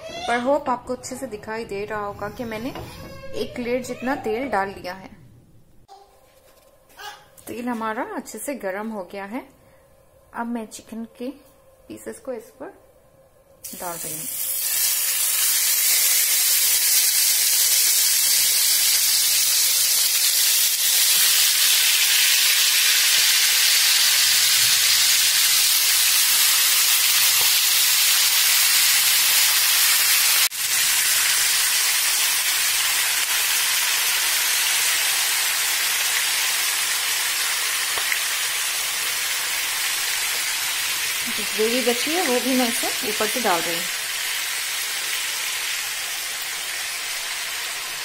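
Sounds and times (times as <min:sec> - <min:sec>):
chicken sizzling in hot oil: 0:13.7 - 0:48.0.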